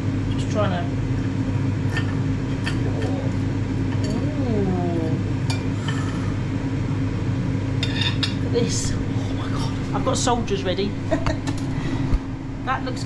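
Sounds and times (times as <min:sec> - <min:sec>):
air fryer humming: 0:00.0 - 0:13.0.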